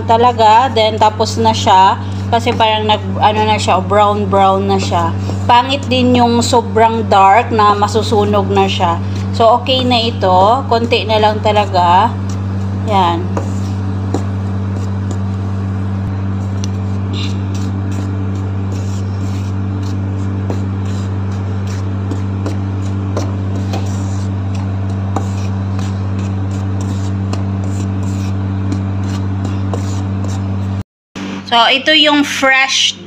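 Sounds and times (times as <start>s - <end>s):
steady low hum: 0.0s - 33.0s
wooden spatula stirring flour: 7.7s - 30.8s.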